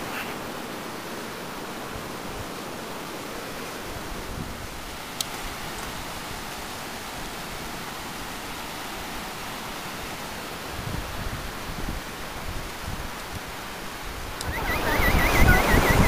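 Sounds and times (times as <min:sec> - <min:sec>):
sea surf breaking: 0:14.3 - 0:16.0.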